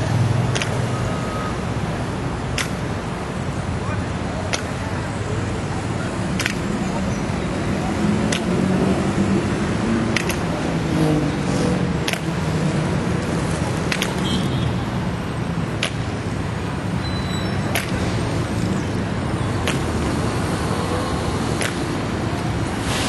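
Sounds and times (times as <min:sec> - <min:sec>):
city traffic: 0:00.0 - 0:23.0
sharp click: 0:00.5 - 0:00.8, 0:10.2 - 0:10.5, 0:13.9 - 0:14.2.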